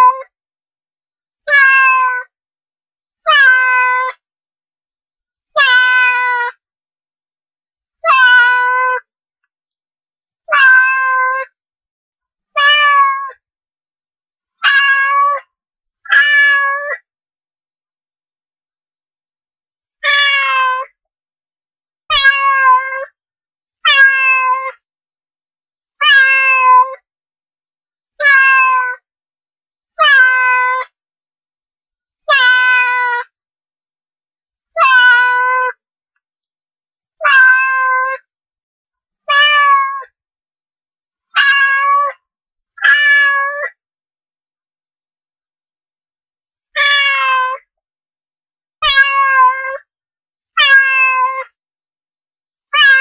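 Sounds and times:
cat meowing: 0.0 - 0.3, 1.5 - 2.3, 3.3 - 4.2, 5.6 - 6.5, 8.0 - 9.0, 10.5 - 11.5, 12.6 - 13.4, 14.6 - 15.5, 16.1 - 17.0, 20.0 - 20.9, 22.1 - 23.1, 23.9 - 24.8, 26.0 - 27.0, 28.2 - 29.0, 30.0 - 30.9, 32.3 - 33.3, 34.8 - 35.8, 37.2 - 38.2, 39.3 - 40.1, 41.3 - 42.2, 42.8 - 43.8, 46.8 - 47.6, 48.8 - 49.8, 50.6 - 51.6, 52.7 - 53.0.

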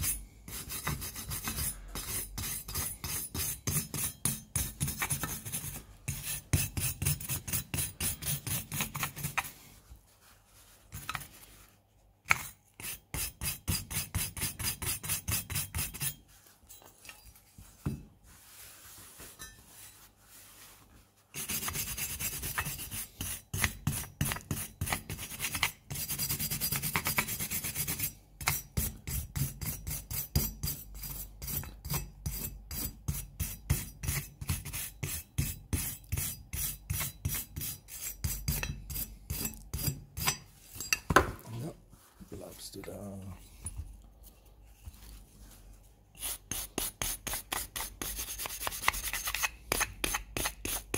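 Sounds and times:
brush scrubbing metal: 0.0 - 11.7, 12.3 - 16.6, 18.4 - 28.2, 46.2 - 50.9.

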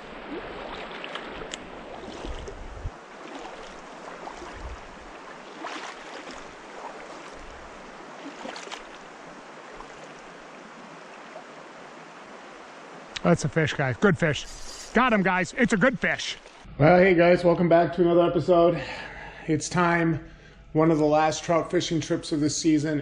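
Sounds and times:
wind rumble on microphone: 0.0 - 3.0, 4.2 - 5.2
water splashing around legs: 0.0 - 10.7.

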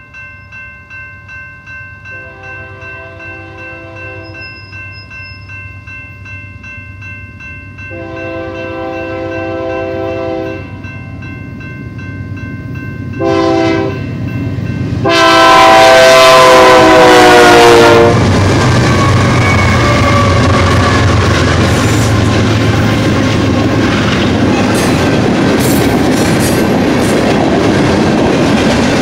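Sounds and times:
crossing signal bell ringing: 0.0 - 18.1, 18.8 - 26.0
locomotive air horn blasts: 2.2 - 4.4, 7.9 - 10.6, 13.2 - 14.0, 15.0 - 18.3
locomotive rumble: 14.7 - 29.0.

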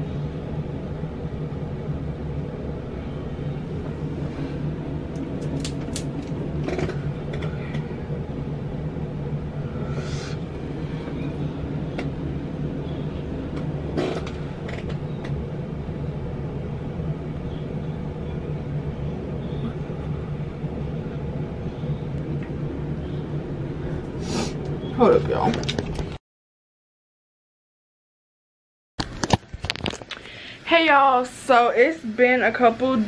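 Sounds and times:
exhaust fan humming: 0.0 - 26.2.

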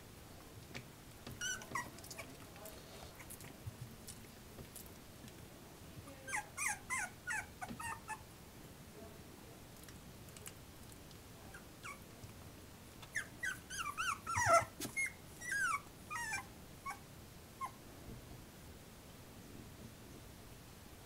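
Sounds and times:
puppy whimpering and squeaking: 1.3 - 2.4, 6.2 - 8.2, 11.5 - 12.0, 13.0 - 17.0.

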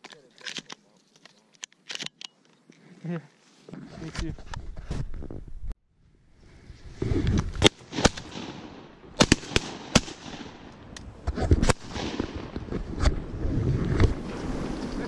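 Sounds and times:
shotguns firing: 7.6 - 12.6.

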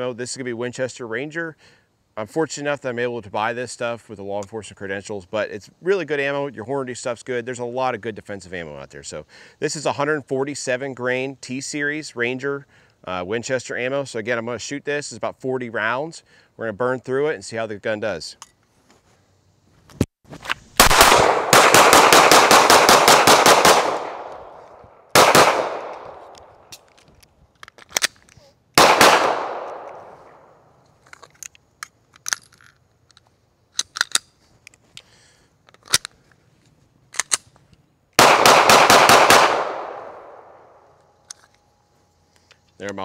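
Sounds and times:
pistol shots with echo: 20.8 - 26.3, 28.8 - 30.4, 38.2 - 40.6.

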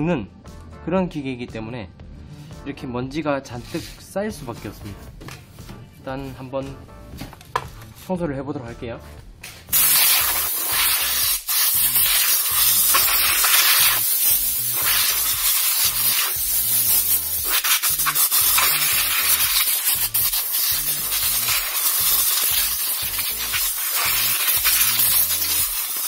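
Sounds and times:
compressed air blow gun hissing: 9.7 - 26.0.

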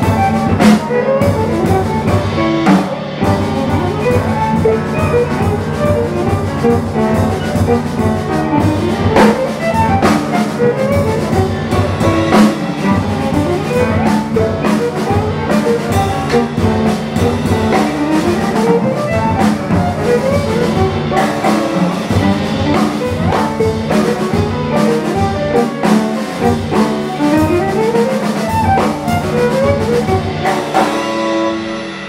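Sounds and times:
bowed violin: 0.0 - 31.7
drum kit and cymbals: 0.0 - 32.0
piano: 0.0 - 32.0.

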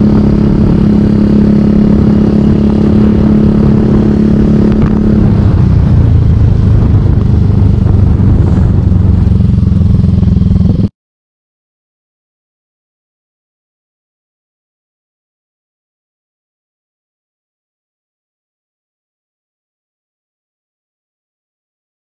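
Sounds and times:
vehicle engine running: 0.0 - 10.9.

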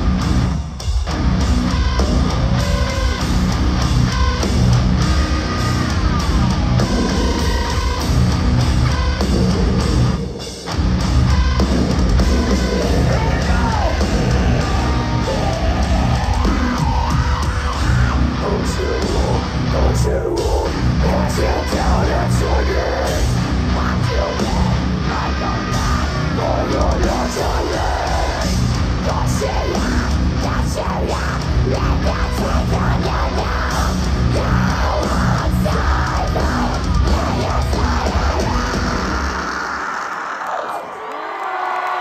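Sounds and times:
heavy metal band playing live: 0.0 - 40.9
shouted vocals: 12.4 - 42.0.

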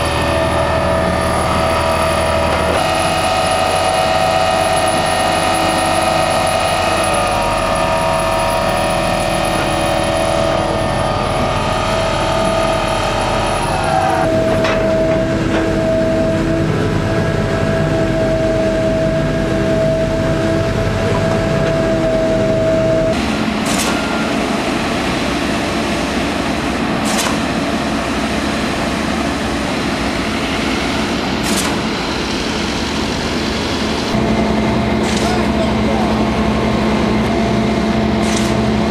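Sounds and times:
high whine: 0.0 - 38.9
piling rig machinery noise: 0.0 - 38.9.

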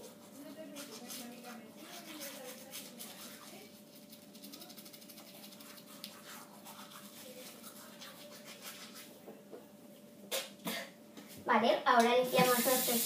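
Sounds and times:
toothbrush scrubbing: 0.0 - 9.2.

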